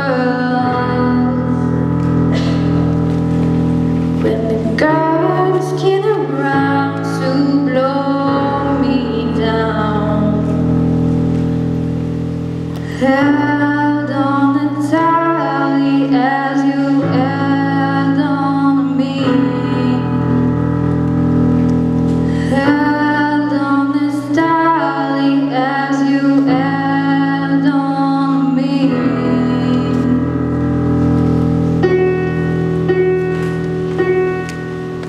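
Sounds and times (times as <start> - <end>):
woman singing slow song: 0.0 - 2.8, 4.2 - 10.9, 12.8 - 21.1, 22.2 - 30.8
electronic keyboard chords: 0.0 - 35.0.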